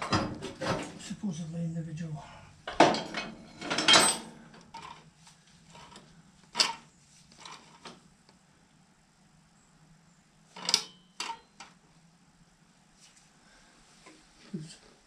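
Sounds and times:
metal clanks and clicks: 0:00.0 - 0:01.0, 0:02.7 - 0:05.1, 0:10.6 - 0:11.8
faint steady hum: 0:00.0 - 0:15.0.

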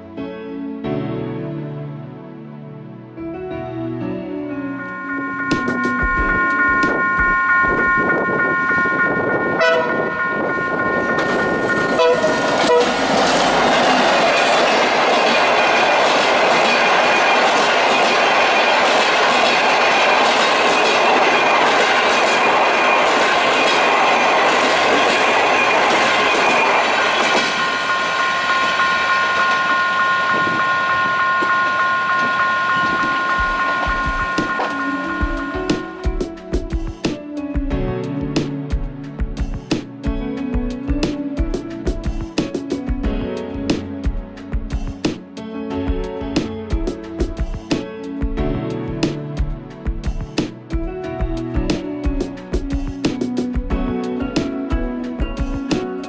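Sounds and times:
steady high tone: 0:04.0 - 0:37.0
rumble of approaching train: 0:04.5 - 0:56.0
level-crossing warning bell: 0:04.6 - 0:37.0
train horn blasts: 0:04.8 - 0:13.8, 0:27.6 - 0:36.2.

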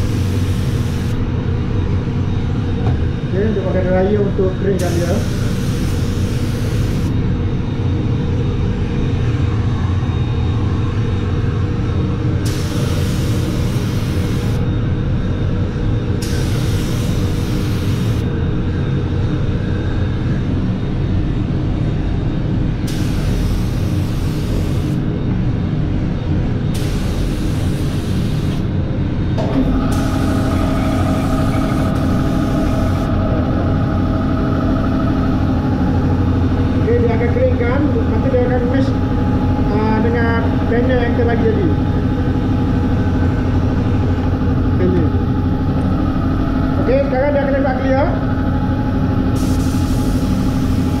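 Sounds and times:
sharp air hiss: 0:00.0 - 0:01.2, 0:04.8 - 0:07.1, 0:12.4 - 0:14.6, 0:16.2 - 0:18.2, 0:22.9 - 0:25.0, 0:26.8 - 0:28.6, 0:29.9 - 0:33.1, 0:49.4 - 0:51.0
blower rushing air: 0:00.0 - 0:19.7, 0:22.1 - 0:51.0
steady hum: 0:00.0 - 0:51.0.

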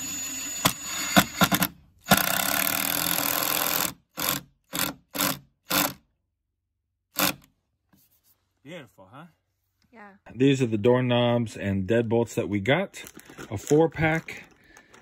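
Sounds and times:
impact driver driving screw: 0:00.0 - 0:06.0, 0:07.1 - 0:07.5.

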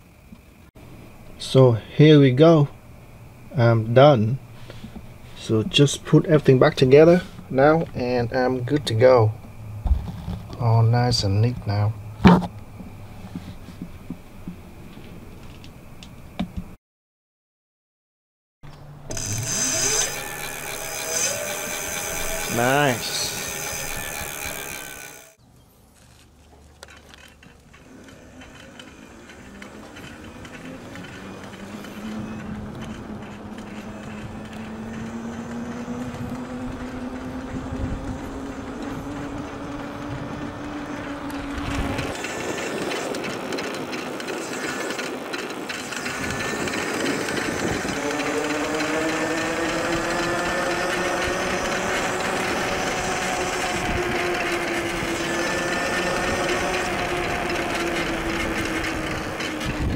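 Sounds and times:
tyre and wind noise: 0:02.7 - 0:16.8, 0:18.8 - 0:59.9
electric motor whining: 0:19.0 - 0:25.4, 0:27.3 - 0:59.9.

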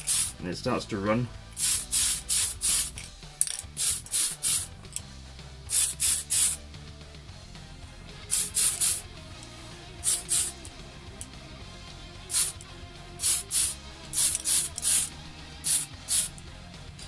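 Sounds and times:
spray paint can hissing: 0:00.0 - 0:00.4, 0:01.6 - 0:03.0, 0:03.6 - 0:04.7, 0:05.7 - 0:06.6, 0:08.3 - 0:09.1, 0:10.0 - 0:10.7, 0:12.3 - 0:12.6, 0:13.2 - 0:16.4.

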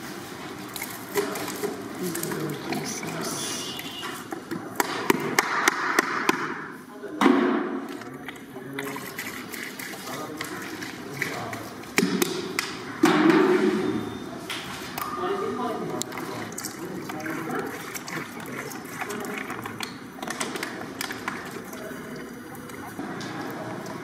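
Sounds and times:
voices talking: 0:01.9 - 0:04.3.

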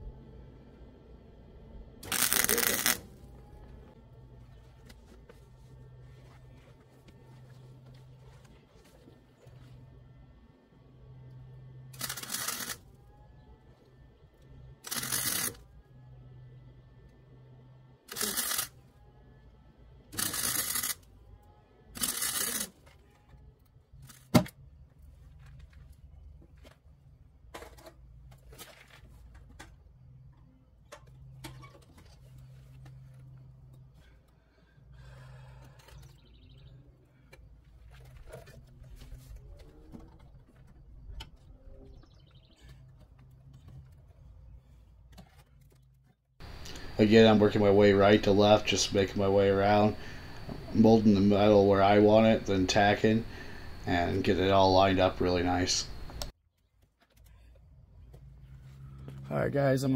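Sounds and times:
welder crackling: 0:02.0 - 0:03.9, 0:12.0 - 0:12.8, 0:14.8 - 0:15.6, 0:18.1 - 0:18.7, 0:20.2 - 0:21.0, 0:22.0 - 0:22.7, 0:46.4 - 0:56.3.

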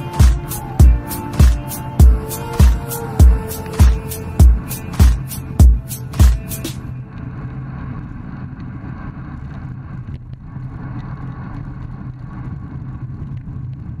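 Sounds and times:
wind and road rumble: 0:06.3 - 0:14.0.

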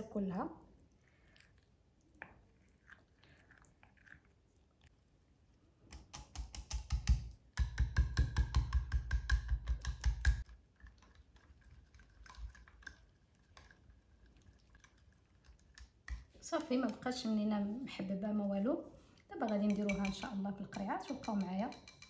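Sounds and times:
whisk clicking against glass bowl: 0:19.4 - 0:22.0.

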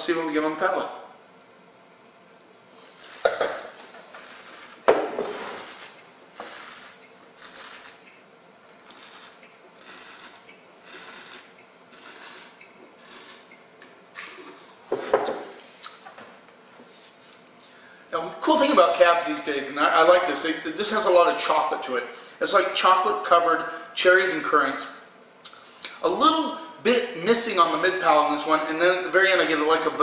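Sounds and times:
air hissing through wine: 0:02.7 - 0:07.0.

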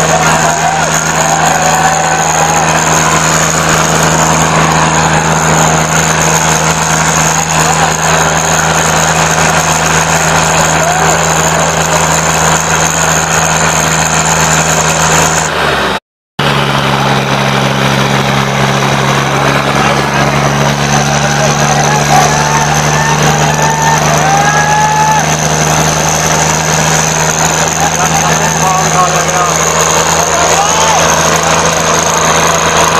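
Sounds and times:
crowd voices: 0:00.0 - 0:32.9
tractor engines droning under load: 0:00.0 - 0:32.9.

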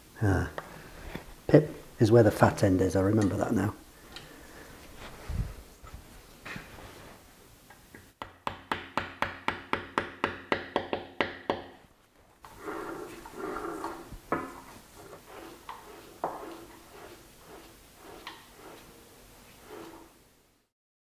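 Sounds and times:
metal-on-metal rubbing: 0:12.5 - 0:20.2.

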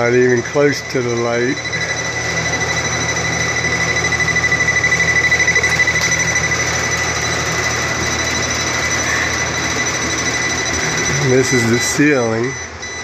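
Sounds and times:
voltage tester beeping: 0:00.0 - 0:13.0.

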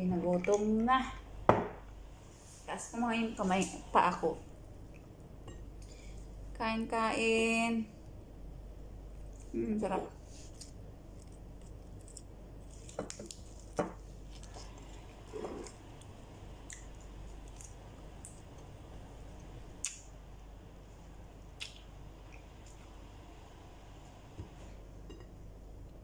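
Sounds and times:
soft chewing: 0:09.1 - 0:09.6, 0:10.2 - 0:20.0.

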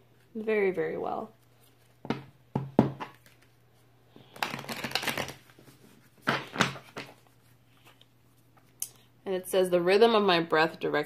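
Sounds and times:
card stock rustling: 0:04.2 - 0:08.0.

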